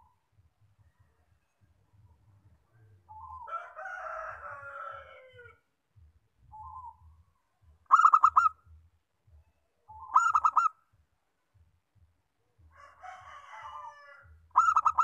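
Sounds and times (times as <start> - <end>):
dove cooing: 3.1 - 3.5, 7.9 - 8.6, 9.9 - 10.8, 13.6 - 15.0.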